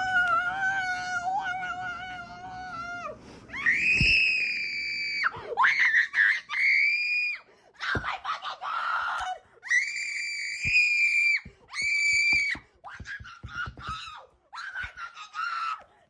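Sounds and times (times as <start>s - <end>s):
woman crying: 0.0s - 3.2s.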